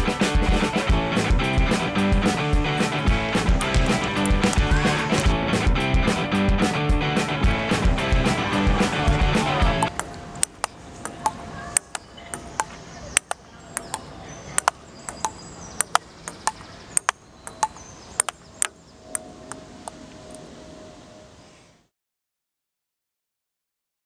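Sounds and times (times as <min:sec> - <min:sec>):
low outdoor background: 0:00.0 - 0:21.9
ping-pong ball clicks: 0:09.8 - 0:20.0.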